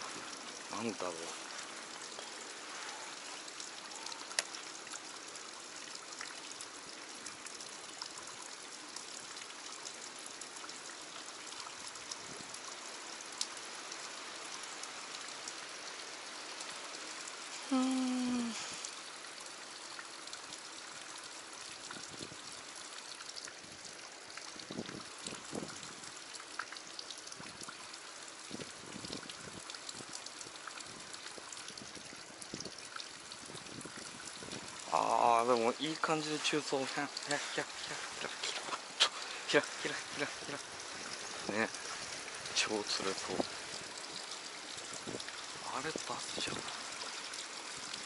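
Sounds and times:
stream water hissing: 0.0 - 48.0
faint clicks: 3.6 - 4.6.

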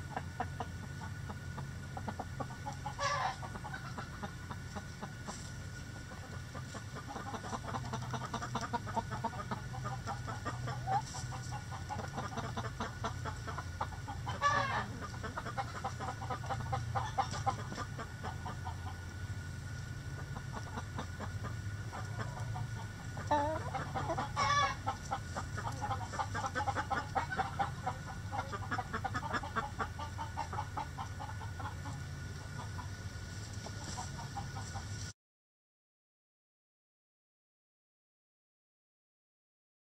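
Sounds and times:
chickens clucking: 0.0 - 35.1
loud chicken call: 2.7 - 4.2, 14.1 - 19.0, 23.2 - 31.9.

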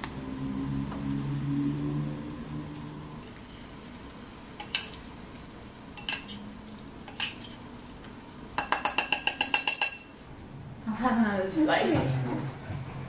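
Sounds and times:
fork clinking on ceramic bowl: 6.0 - 6.4, 8.6 - 10.2.

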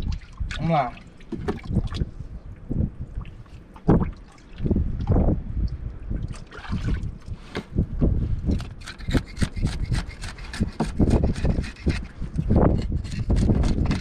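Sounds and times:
knife scraping fish scales: 8.5 - 14.0.

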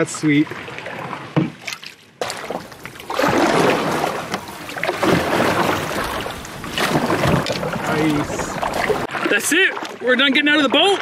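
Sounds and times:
water rushing and splashing: 0.0 - 11.0
knocks on canoe: 1.4 - 1.6.

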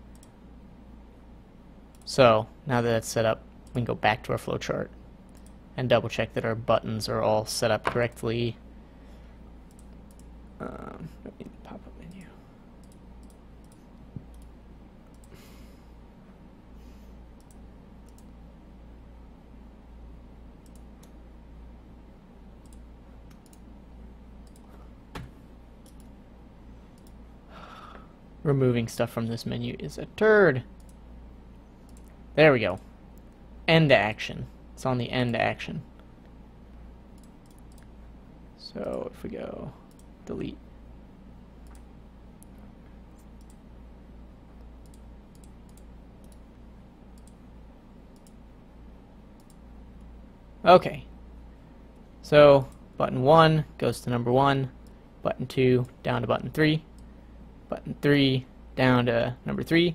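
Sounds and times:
steady low hum: 0.0 - 59.9
computer mouse clicks: 0.1 - 0.4, 5.3 - 5.6, 9.6 - 10.3, 12.8 - 15.4, 17.4 - 18.3, 20.6 - 21.2, 22.6 - 23.7, 24.4 - 26.2, 27.0 - 27.2, 30.8 - 31.0, 31.8 - 33.4, 37.1 - 37.9, 39.9 - 40.1, 41.6 - 42.6, 43.2 - 43.6, 44.6 - 46.5, 47.2 - 47.4, 48.1 - 48.4, 49.4 - 50.1
faint computer mouse clicks: 0.1 - 0.4, 12.8 - 14.5, 17.4 - 18.3, 22.6 - 23.6, 24.4 - 24.8, 25.8 - 26.1, 43.2 - 43.6, 44.6 - 46.4, 48.1 - 48.4, 49.4 - 50.1.

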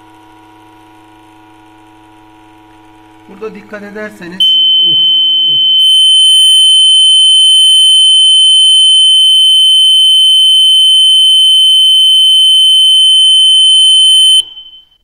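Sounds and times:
high-pitched siren buzzer tone: 4.4 - 15.0.

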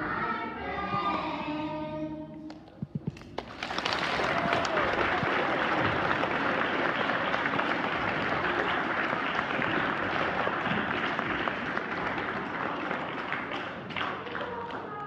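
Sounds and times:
audience applauding: 3.2 - 15.0.

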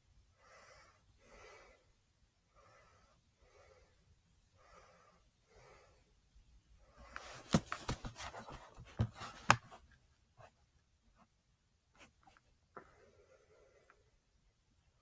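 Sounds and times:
faint breathing: 0.3 - 7.6, 12.7 - 14.4.

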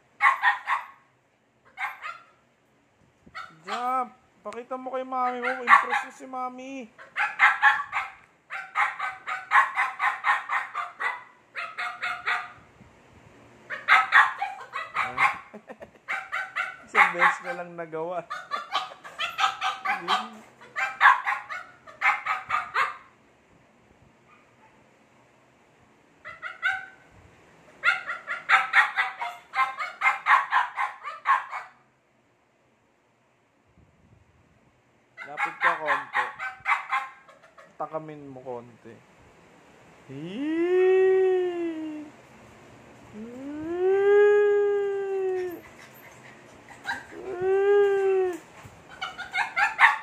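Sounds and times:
puppy yapping: 0.2 - 1.0, 1.7 - 2.4, 3.4 - 4.0, 5.2 - 6.2, 7.0 - 12.6, 13.7 - 15.5, 16.1 - 17.7, 18.3 - 23.1, 26.2 - 27.0, 27.8 - 31.8, 35.2 - 37.8, 45.2 - 50.0.

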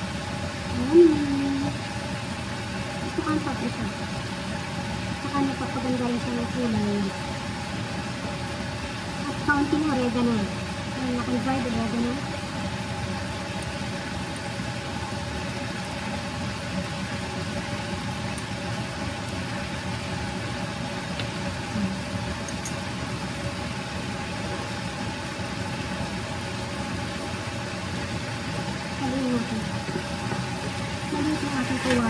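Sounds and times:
fan motor hum and hiss: 0.0 - 32.0.

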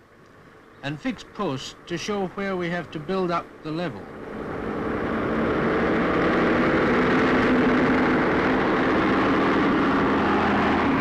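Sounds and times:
motor scraper engine running hard: 4.1 - 11.0.

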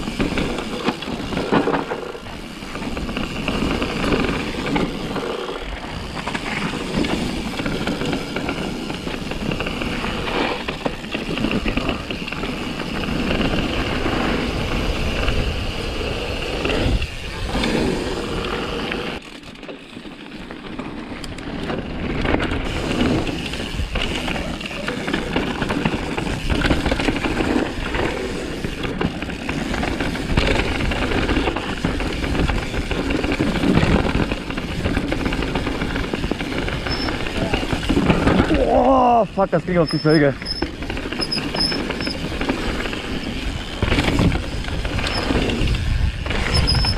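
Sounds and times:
bike rattling: 0.0 - 46.9
bike tyre rumble over dirt: 0.0 - 46.9
wind on microphone: 43.0 - 46.9.

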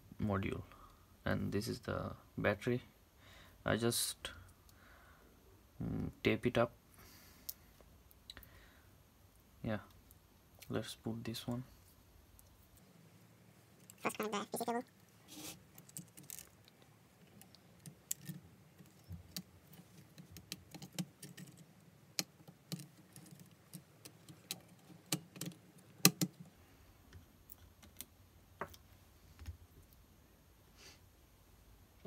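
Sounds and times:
plastic parts clicking and tapping: 17.3 - 21.6, 22.2 - 26.5.

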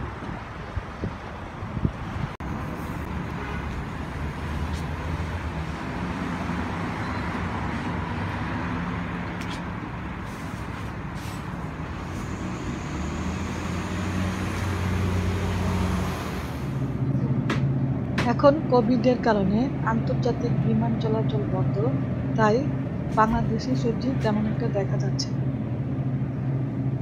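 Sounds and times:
heavy vehicle engine running: 0.0 - 18.7
road traffic noise: 0.0 - 27.0.

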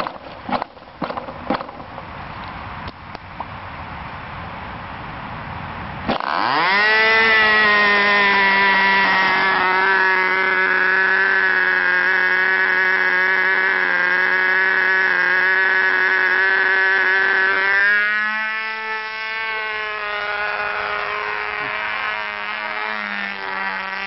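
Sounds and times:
electric starter spinning: 6.0 - 24.0
model engine buzzing at high revs: 6.0 - 24.0.

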